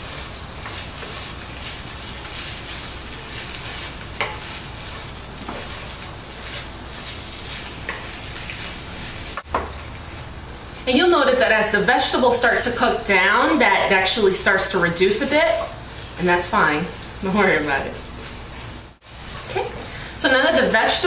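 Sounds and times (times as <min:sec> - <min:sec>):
vegetables sizzling in fat: 0:00.0 - 0:21.0.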